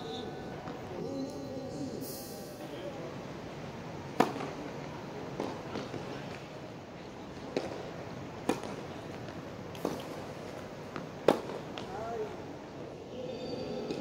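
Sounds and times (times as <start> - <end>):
tennis ball hits: 10.9 - 11.9.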